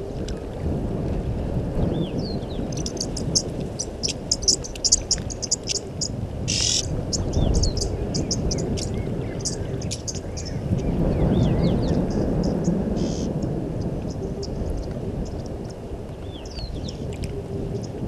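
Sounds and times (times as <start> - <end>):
low rumble: 0.0 - 18.0
bird chirps: 2.3 - 13.3
insects chirping: 2.7 - 11.1.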